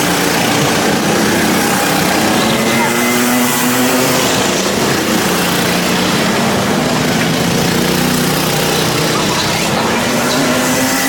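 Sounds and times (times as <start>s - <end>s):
go-kart engines running: 0.0s - 11.0s.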